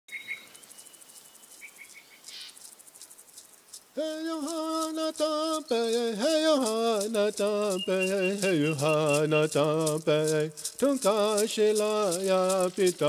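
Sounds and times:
light ticking: 0.5 - 13.0
person chanting in held notes: 4.0 - 13.0
faint high chirps: 7.6 - 9.7.

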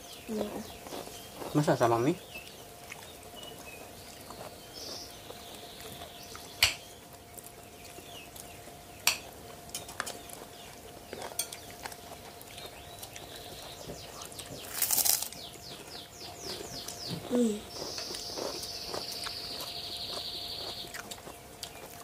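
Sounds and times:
spoons and plates clinking: 11.2 - 11.7.

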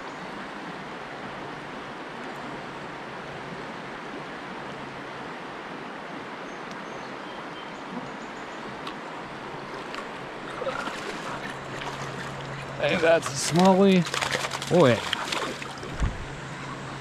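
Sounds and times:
river water rushing: 7.1 - 17.0.

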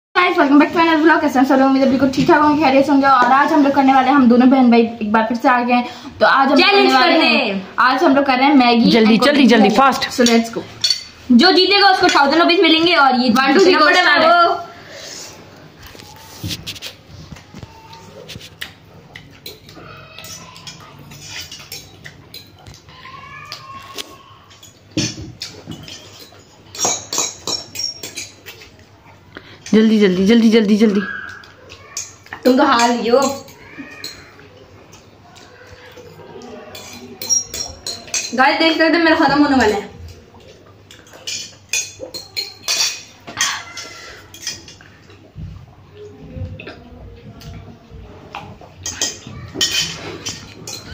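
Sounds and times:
cutlery clicking on plates: 10.0 - 11.2, 17.6 - 28.8, 31.2 - 45.3, 48.3 - 50.9.

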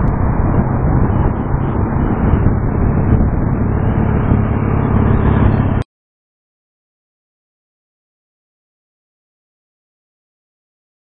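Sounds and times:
wind buffeting microphone: 0.0 - 5.8
road traffic: 0.0 - 5.9.

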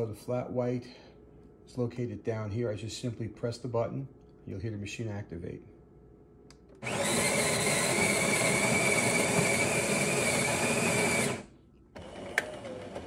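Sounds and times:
coffee grinder whining: 6.8 - 13.0.

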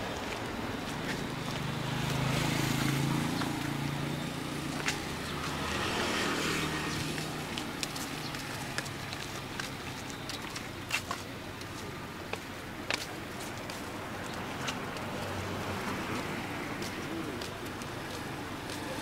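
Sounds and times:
vehicle engine passing: 0.9 - 9.1.

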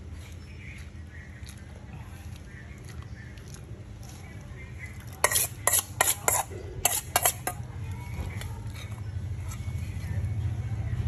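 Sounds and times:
metal spoon scraping steel bowl: 5.0 - 7.7.

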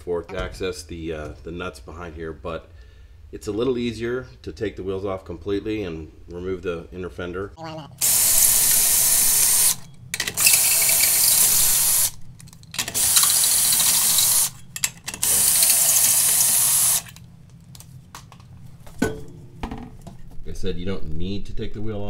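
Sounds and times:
pneumatic air tool hissing: 8.0 - 12.2, 12.8 - 14.6, 15.2 - 17.2.

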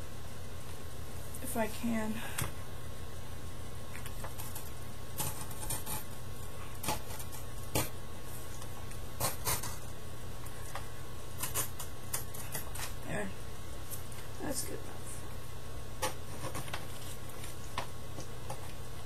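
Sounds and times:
steady low hum: 0.0 - 19.0
knife blade scratching paper: 9.2 - 9.8.

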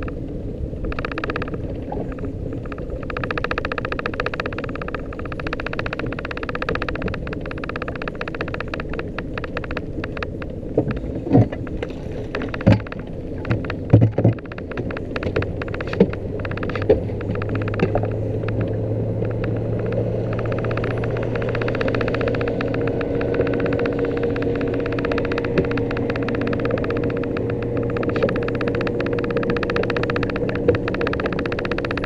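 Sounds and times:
deep steady hum: 0.0 - 32.0
outboard motor running: 0.0 - 32.0
sharp knocks and thumps: 12.3 - 18.7.

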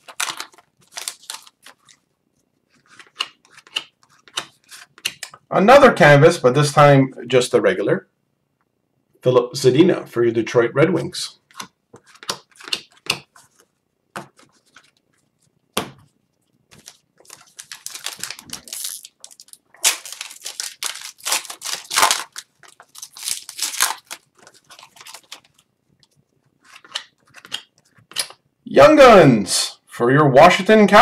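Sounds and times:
card wrapper crinkling and tearing: 0.0 - 2.0, 16.7 - 25.7.

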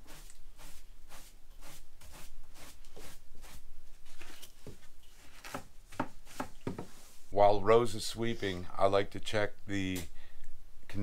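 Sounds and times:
broom sweeping floor: 0.0 - 7.4.

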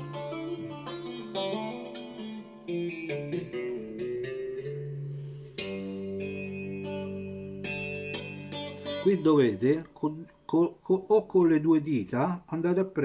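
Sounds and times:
electric guitar tapped arpeggio: 0.0 - 9.6
guitar chord with bass note: 0.0 - 10.4.

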